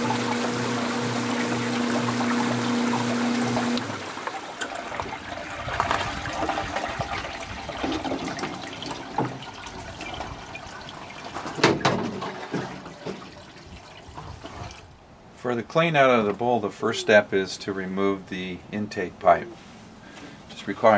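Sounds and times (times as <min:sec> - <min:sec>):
water rushing through centrifuge: 0:00.0 - 0:14.9.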